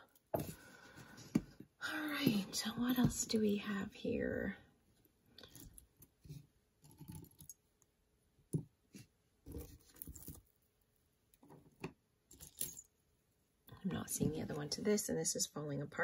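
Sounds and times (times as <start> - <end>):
metal earrings clinking: 5.4 - 6.2, 6.8 - 7.7, 9.6 - 10.6, 12.3 - 13.0.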